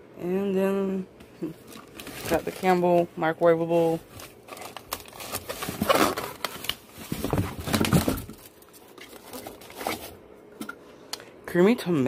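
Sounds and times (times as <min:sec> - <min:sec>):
plastic wrap crinkling: 0:01.6 - 0:10.2.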